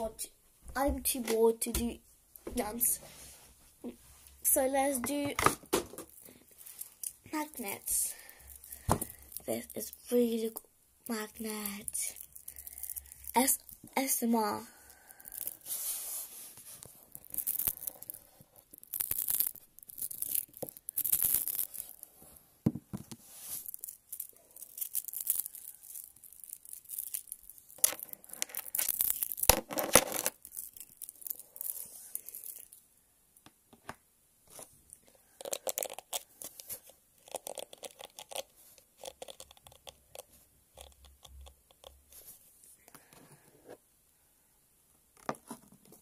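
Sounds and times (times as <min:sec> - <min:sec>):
magnets clicking and scraping: 0:15.1 - 0:15.9, 0:16.8 - 0:22.1, 0:23.4 - 0:32.8, 0:35.4 - 0:42.0.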